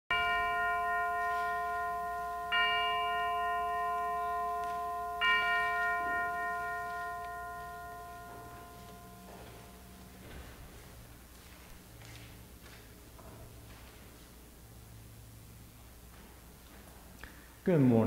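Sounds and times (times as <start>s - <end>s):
bell ringing: 0.1s - 11.1s.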